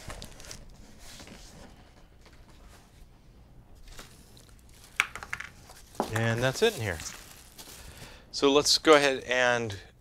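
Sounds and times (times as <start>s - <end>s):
packing material rustling: 0.0s - 1.7s, 3.8s - 8.2s
plastic crackles: 3.8s - 8.2s.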